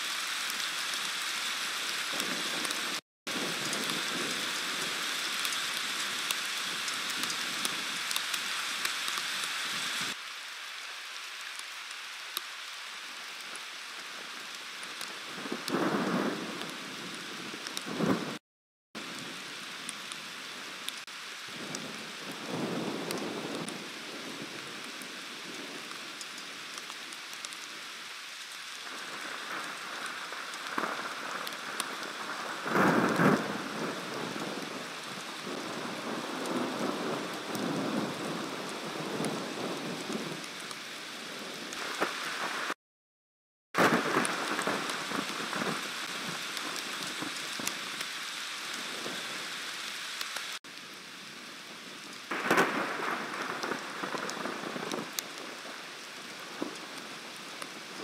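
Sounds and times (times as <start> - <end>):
steady rain: 0.0 - 18.4, 19.0 - 42.8, 43.8 - 58.0
thunder rumbling: 15.3 - 18.4, 28.9 - 40.4, 43.8 - 47.7, 52.3 - 55.6.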